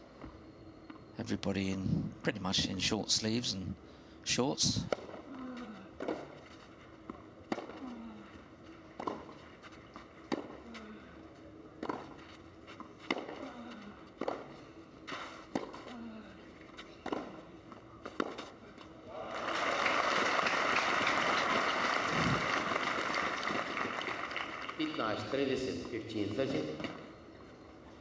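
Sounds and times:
racquet hitting tennis ball: 13.0 - 13.4.

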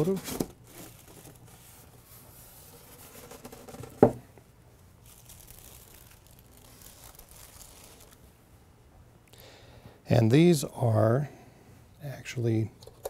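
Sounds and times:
plastic wrapping crinkling: 0.0 - 4.1, 5.0 - 8.2.

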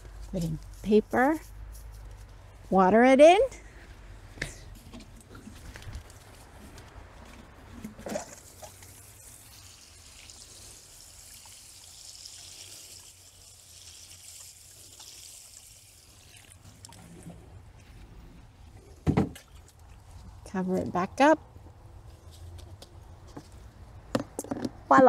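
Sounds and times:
water pouring into bucket: 8.0 - 17.6.

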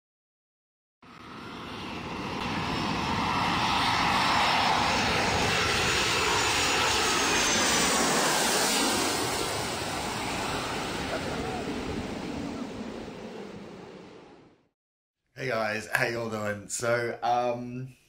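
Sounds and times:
jet airliner flying overhead: 1.0 - 14.7.

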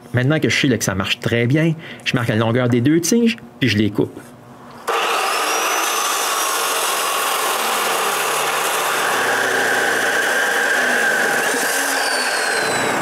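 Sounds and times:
chop saw grinding steel: 4.9 - 13.0.

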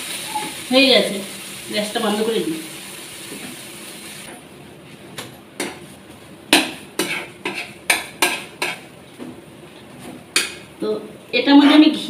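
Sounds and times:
spatula scraping frying pan: 6.6 - 9.0.

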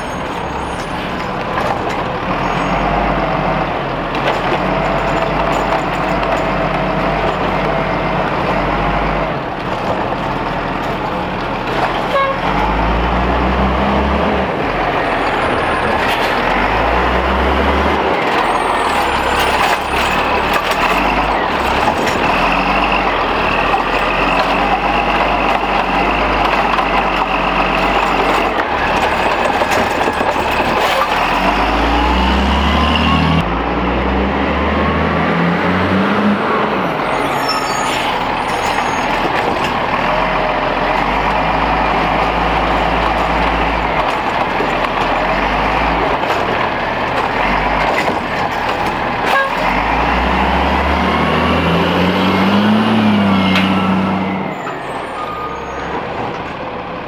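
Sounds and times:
diesel engine revving: 0.0 - 57.0
hydraulic gliding whines: 11.9 - 44.3, 49.5 - 56.4.

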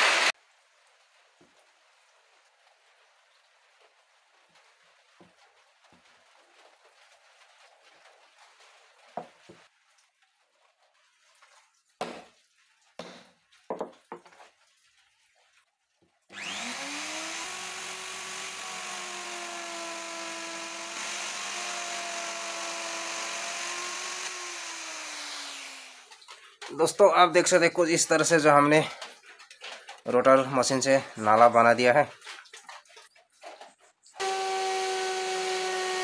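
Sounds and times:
electric router cutting wood: 0.0 - 0.3, 16.3 - 26.2, 34.2 - 36.0.

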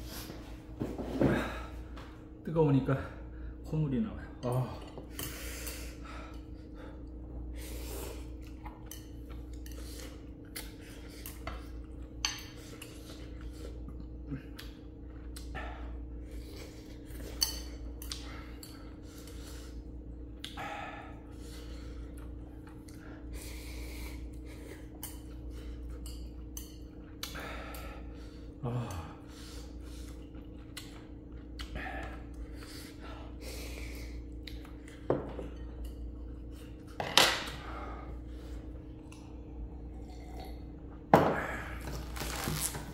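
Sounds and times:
steady low hum: 0.0 - 42.9
person breathing: 23.2 - 24.8, 37.5 - 38.8.

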